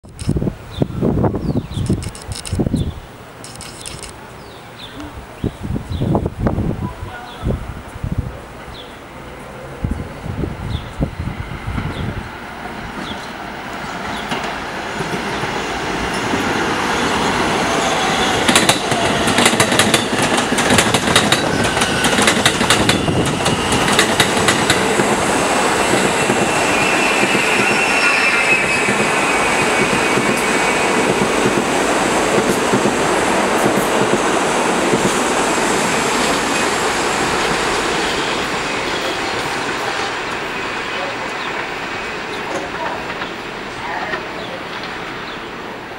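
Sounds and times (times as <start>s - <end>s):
train wheels on rails: 7.8s - 45.9s
wheels clacking over rail joints: 18.3s - 26.6s, 36.1s - 45.4s
high wheel squeal: 24.8s - 31.2s.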